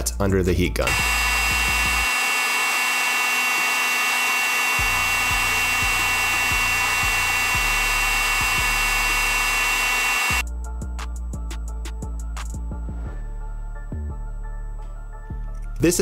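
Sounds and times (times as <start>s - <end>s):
heat gun air rushing: 0.9s - 10.4s
high-pitched fan whine: 0.9s - 10.4s.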